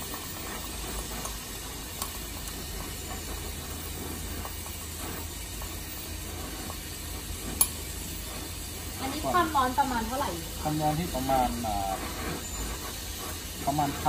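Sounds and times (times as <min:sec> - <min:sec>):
torch flame hissing: 0:00.0 - 0:14.0.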